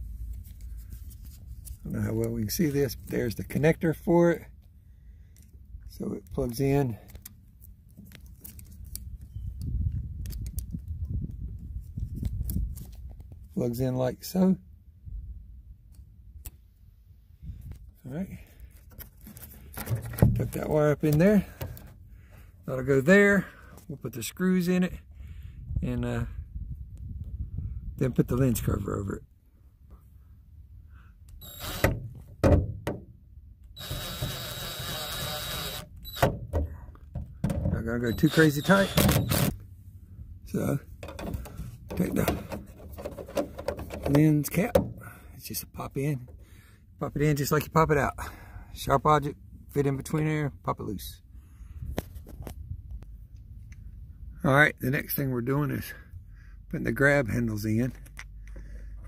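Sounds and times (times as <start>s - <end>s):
handling rumble with soft knocks: 17.4s - 24.1s, 31.9s - 33.6s, 36.3s - 38.1s, 39.5s - 46.5s
power drill motor running: 31.4s - 32.0s, 33.8s - 36.2s, 38.1s - 39.6s.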